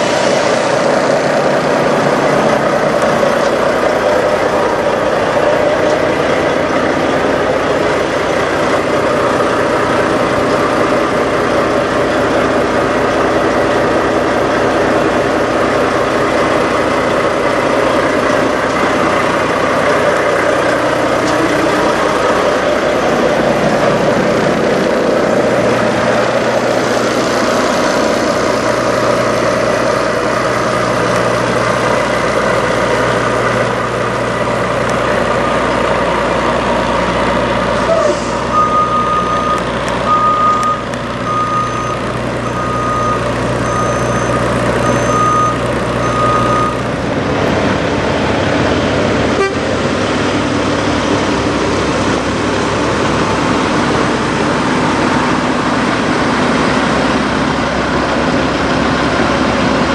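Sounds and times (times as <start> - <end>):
truck engines idling: 0.0 - 59.9.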